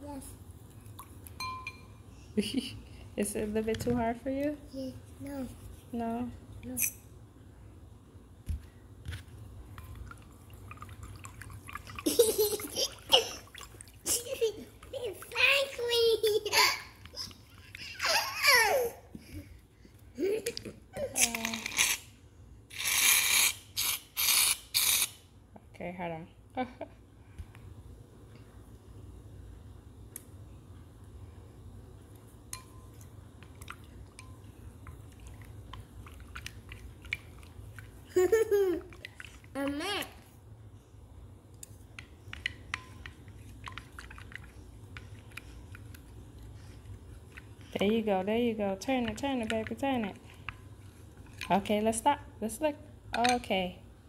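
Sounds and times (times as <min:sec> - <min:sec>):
stick tapping glass bowl: 0:01.4 - 0:01.9, 0:32.5 - 0:33.0, 0:42.4 - 0:43.2, 0:53.2 - 0:53.5
water sloshing in bowl: 0:09.1 - 0:15.9, 0:32.5 - 0:40.2, 0:42.3 - 0:51.9
water drips: 0:09.7 - 0:15.5
soft squishes: 0:33.0 - 0:38.1, 0:41.5 - 0:48.0.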